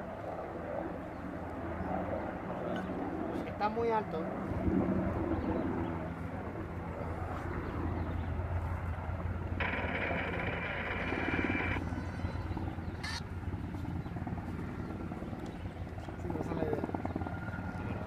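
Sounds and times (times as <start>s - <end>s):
helicopter engine and rotor: 0.0s - 18.0s
raspy high buzzing: 9.6s - 13.2s.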